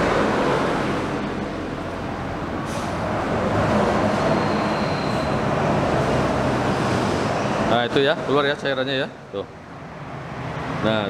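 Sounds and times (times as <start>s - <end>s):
pneumatic bleeder hissing: 2.6s - 3.1s.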